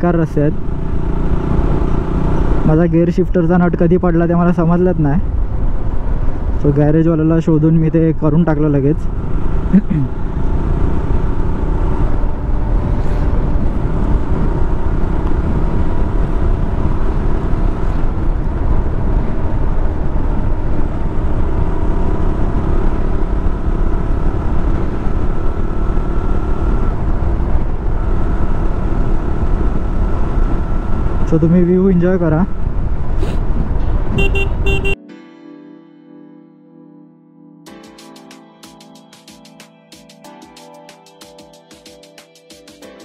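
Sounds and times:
motorcycle engine cruising: 0:00.0 - 0:35.0
wind rumble on microphone: 0:04.9 - 0:06.7, 0:10.3 - 0:31.2, 0:32.3 - 0:34.2.

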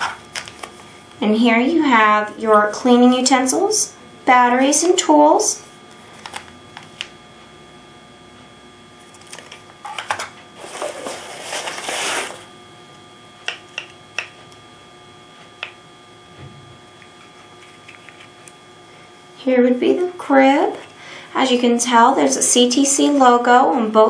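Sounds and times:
packaging rustling: 0:00.0 - 0:00.8, 0:09.1 - 0:12.5
faint steady hum: 0:00.0 - 0:24.0.

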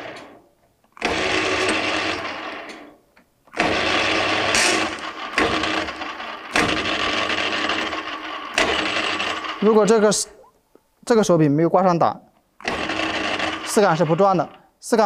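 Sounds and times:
lathe motor humming: 0:01.0 - 0:02.8, 0:03.5 - 0:10.3, 0:12.6 - 0:14.6.

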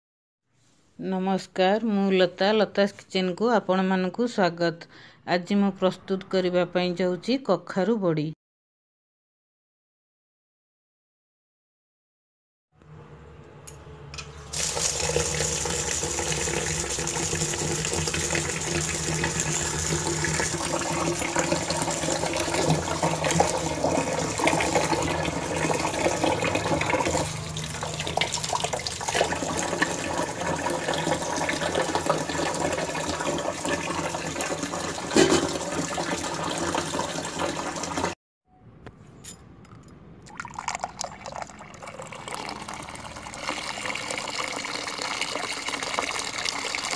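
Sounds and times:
tap water running into metal bowl: 0:14.5 - 0:38.2, 0:40.3 - 0:46.9.

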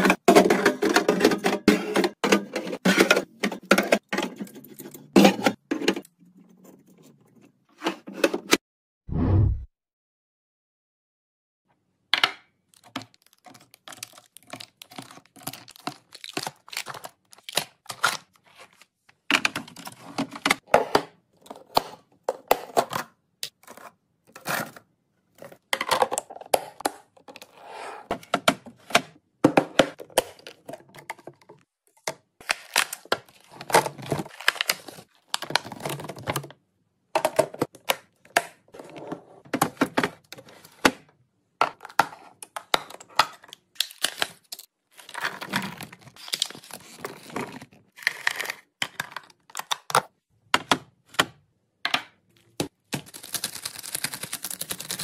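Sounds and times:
plastic pouches crinkling: 0:12.8 - 0:18.6, 0:43.4 - 0:48.5, 0:52.5 - 0:55.0.

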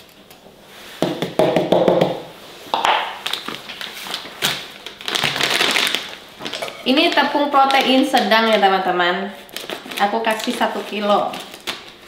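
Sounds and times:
paper bag crinkling: 0:03.2 - 0:12.0.

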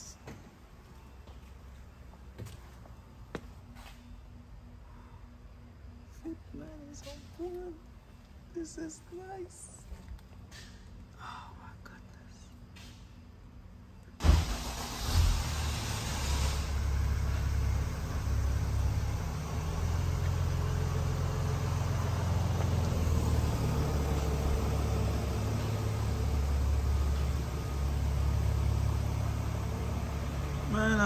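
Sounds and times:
car engine idling: 0:14.2 - 0:31.0.

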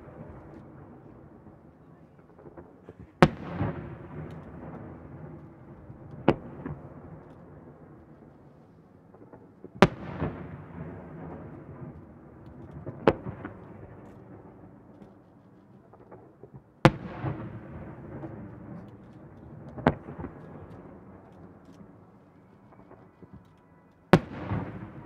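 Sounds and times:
rolling echo: 0:00.0 - 0:25.0
firework bangs: 0:02.4 - 0:07.6, 0:09.2 - 0:14.6, 0:15.9 - 0:21.6, 0:24.1 - 0:25.0.

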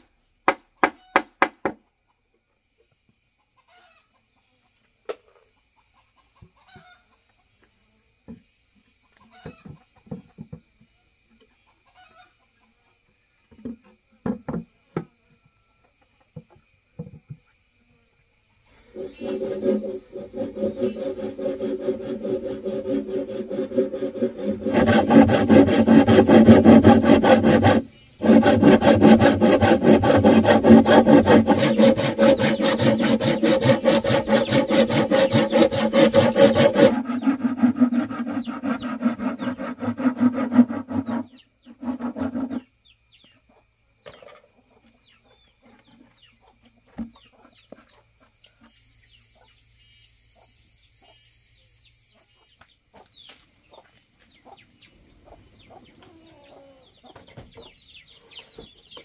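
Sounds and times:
loud fast rasping: 0:18.8 - 0:42.6
faint bird chirps: 0:42.6 - 0:59.0.

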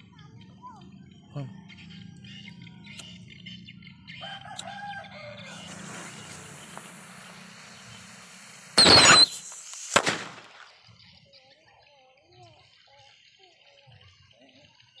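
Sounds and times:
firecracker blasts: 0:05.4 - 0:10.9
firecracker hissing: 0:05.4 - 0:10.9.

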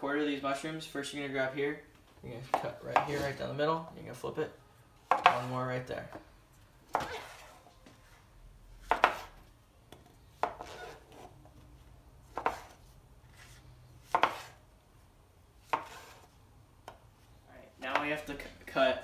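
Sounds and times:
knife cutting on cutting board: 0:06.9 - 0:07.6, 0:08.8 - 0:09.4, 0:10.4 - 0:11.3, 0:12.3 - 0:14.6, 0:15.6 - 0:16.3.

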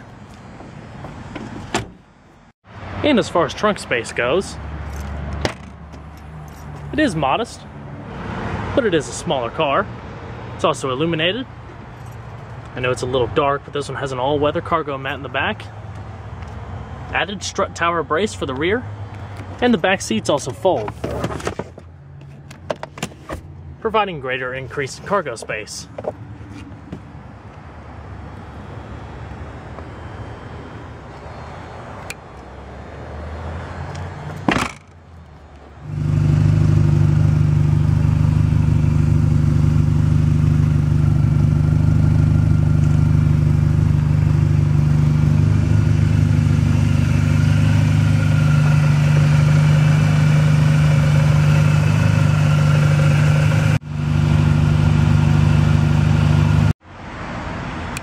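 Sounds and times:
car hatch slamming shut: 0:01.3 - 0:02.0
car engine idling loudly: 0:35.9 - 0:56.7.

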